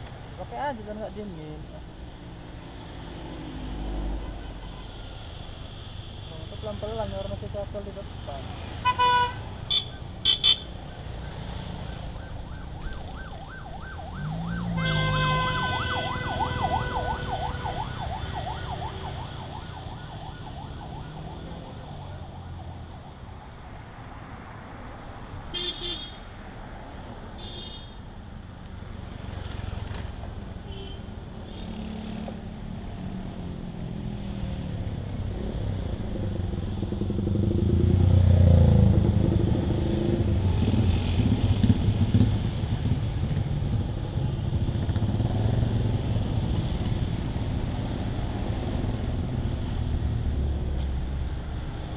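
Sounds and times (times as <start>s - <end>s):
traffic passing on wet road: 6.5s - 27.4s, 28.3s - 51.9s
car horn beeps: 8.8s - 10.7s
warbling siren: 10.8s - 23.6s.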